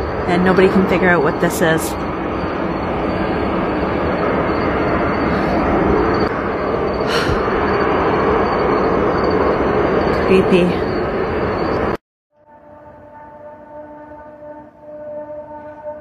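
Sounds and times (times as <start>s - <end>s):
loud rumbling drone in the sky: 0.0s - 13.2s.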